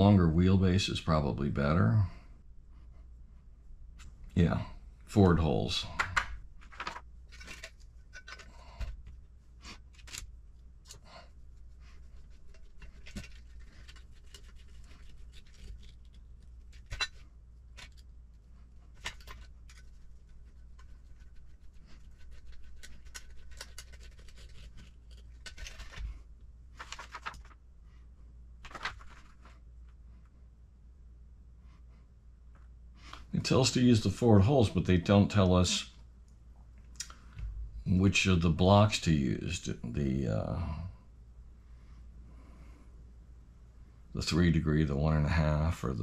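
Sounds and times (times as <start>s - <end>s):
plastic parts clicking and tapping: 6.0s - 9.2s.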